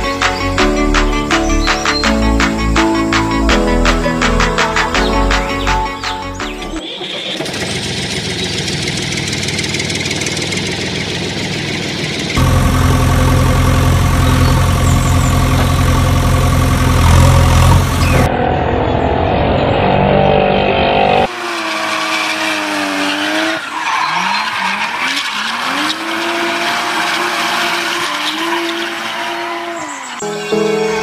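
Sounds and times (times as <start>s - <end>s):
music: 0.0s - 6.8s, 30.2s - 31.0s
engine revving: 7.0s - 30.1s
low engine hum: 7.2s - 19.8s.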